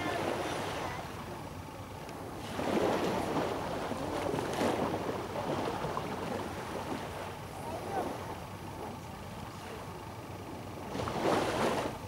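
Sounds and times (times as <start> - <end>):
small waves washing onto sand: 2.4 - 7.3.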